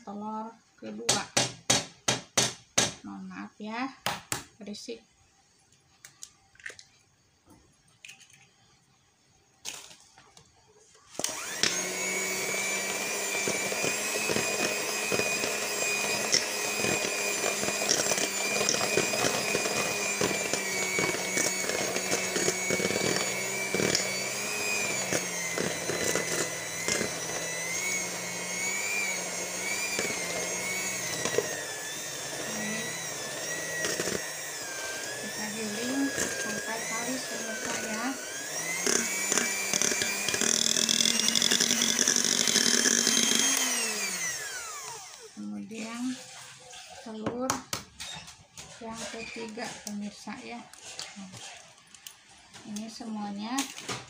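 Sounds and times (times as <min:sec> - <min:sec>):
electric hand mixer whining: 0:11.1 - 0:52.0.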